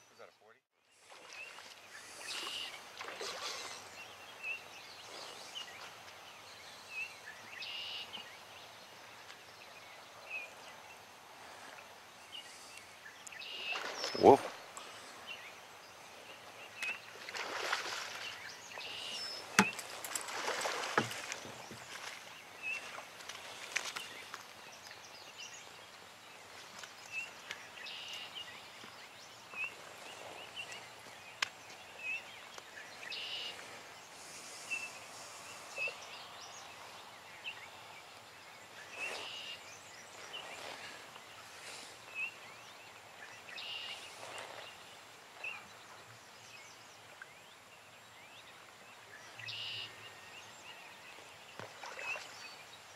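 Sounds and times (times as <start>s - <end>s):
small birds chirping: 0.0s - 52.9s
water splashes: 0.9s - 8.4s, 9.0s - 37.0s, 51.0s - 52.8s.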